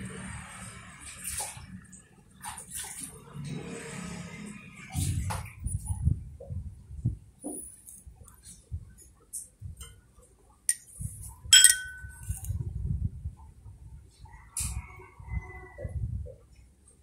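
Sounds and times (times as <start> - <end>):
metal spoon clinking: 11.5 - 12.4.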